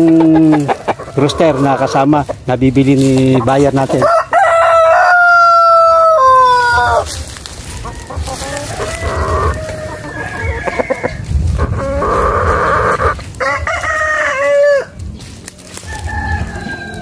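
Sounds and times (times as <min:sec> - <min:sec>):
roosters crowing: 0:00.0 - 0:02.4, 0:03.0 - 0:17.0
chickens calling: 0:00.0 - 0:17.0.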